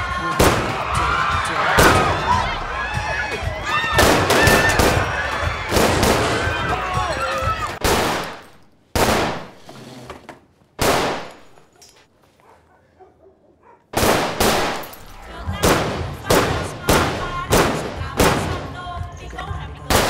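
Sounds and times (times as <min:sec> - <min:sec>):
pistol shots: 0:00.4 - 0:00.8, 0:04.0 - 0:05.1, 0:05.7 - 0:06.4, 0:07.8 - 0:09.6, 0:10.8 - 0:11.6, 0:13.9 - 0:18.8.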